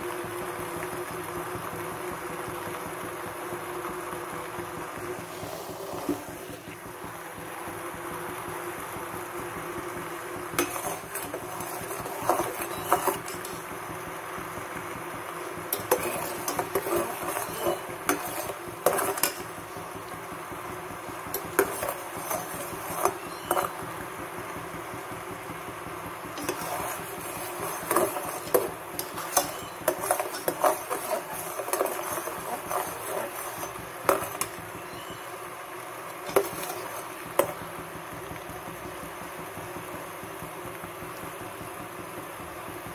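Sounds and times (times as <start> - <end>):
syrup bubbling: 0.0 - 42.9
spatula scraping a pan: 10.5 - 13.7, 15.7 - 19.8, 21.2 - 23.9, 26.4 - 35.2, 36.2 - 37.6.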